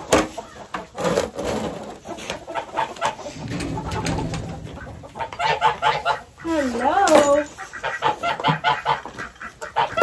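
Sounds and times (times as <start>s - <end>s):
chickens clucking: 0.0s - 10.0s
sharp knocks and clatter: 3.0s - 6.2s.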